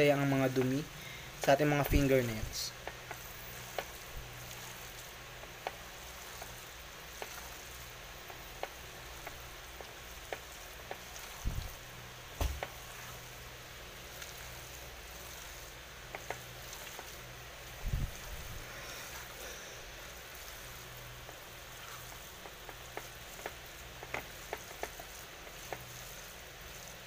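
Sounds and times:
hands squeezing wet filling: 2.8s - 27.0s
dull thumps: 12.4s - 12.8s.

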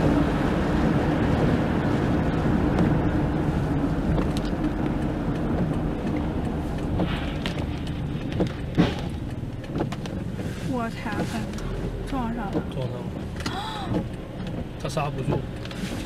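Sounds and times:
road and tyre noise on wet road: 0.0s - 16.0s.

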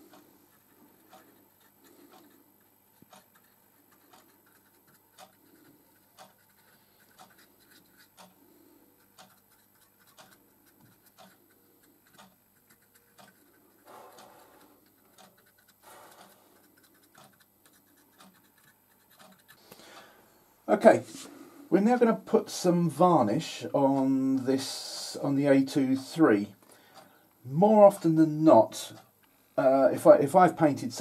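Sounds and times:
paintbrush scratching: 0.0s - 19.6s
faint steady ticking: 0.0s - 31.0s.

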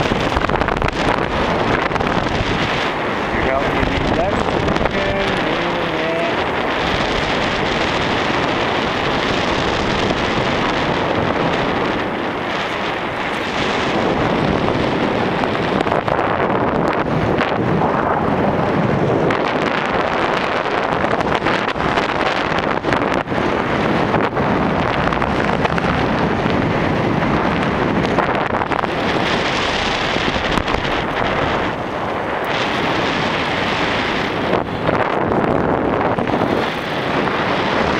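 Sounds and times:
wind rushing over microphone: 0.0s - 37.9s.

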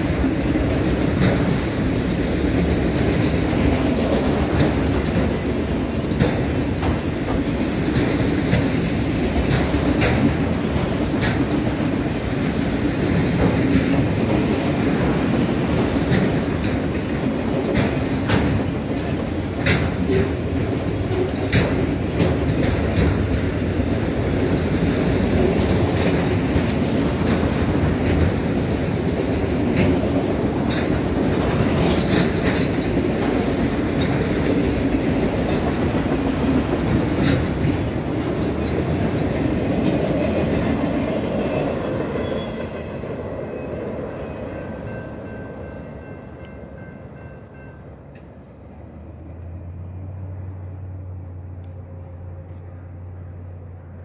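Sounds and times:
wheels clicking over rail joints: 0.0s - 42.8s
freight train rumbling past: 0.0s - 54.0s.

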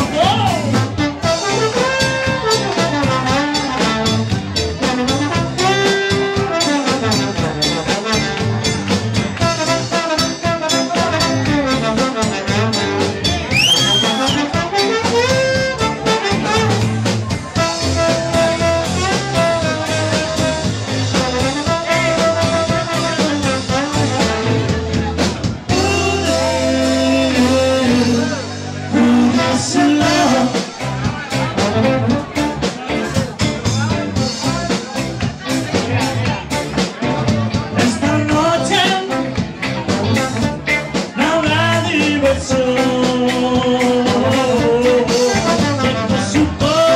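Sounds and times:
live band playing: 0.0s - 46.9s
trombone melody: 0.7s - 25.1s, 25.7s - 30.8s, 31.4s - 32.6s, 42.7s - 46.9s.

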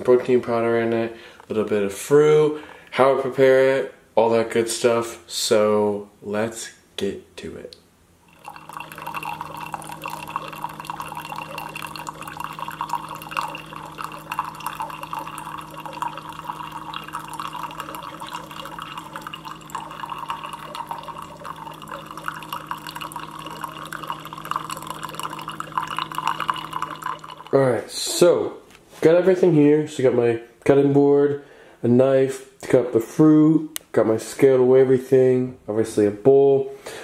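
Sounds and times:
coffee pouring into a mug: 8.2s - 27.6s
coffee maker humming: 8.2s - 28.2s.

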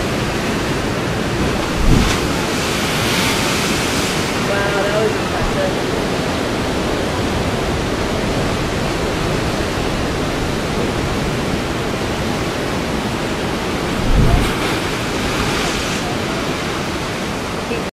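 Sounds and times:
ocean surf breaking on rocks: 0.0s - 17.9s
deep boom of wave in rock chasm: 14.0s - 15.0s.

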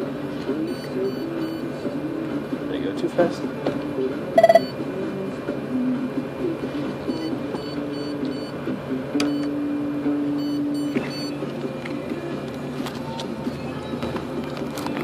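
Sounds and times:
short electronic beeps: 4.4s - 4.8s.

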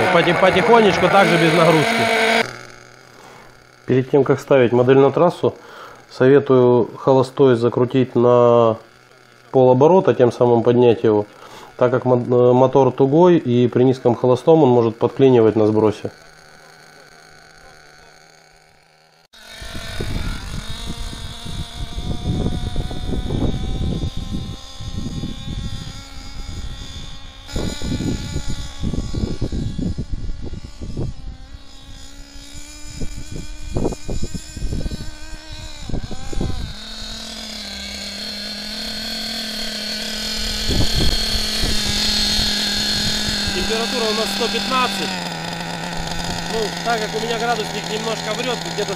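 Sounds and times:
nitro engine revving: 0.0s - 48.9s.

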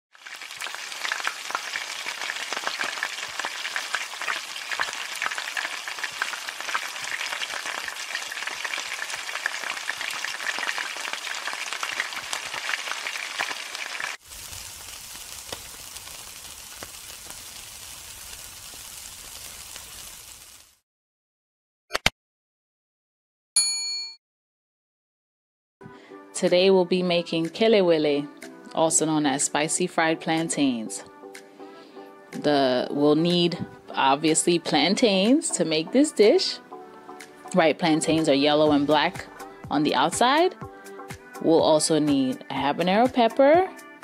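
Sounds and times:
food sizzling in hot oil: 0.1s - 20.8s.

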